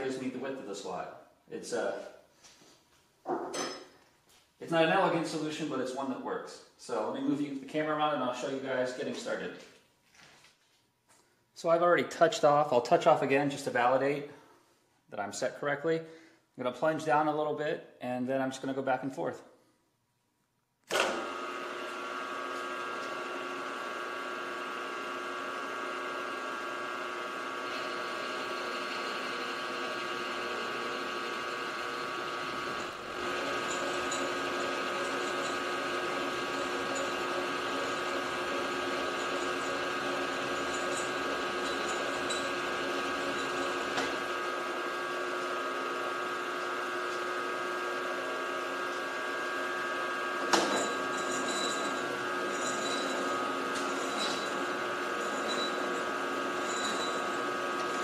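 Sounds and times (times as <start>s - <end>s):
end mill cutting steel: 20.9s - 58.0s
milling machine spindle whine: 20.9s - 58.0s.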